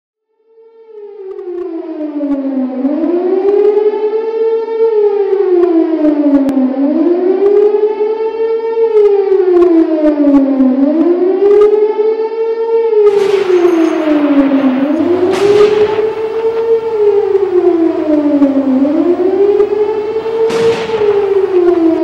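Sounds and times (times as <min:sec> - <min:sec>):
siren-like wail: 0:00.4 - 0:22.0.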